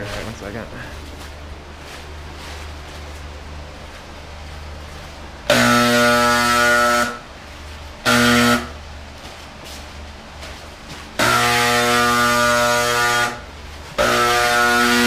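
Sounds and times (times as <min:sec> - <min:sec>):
ventilation fan humming: 0:00.0 - 0:15.0
electric paint sprayer buzzing: 0:05.4 - 0:07.3, 0:08.0 - 0:08.8, 0:11.1 - 0:15.0.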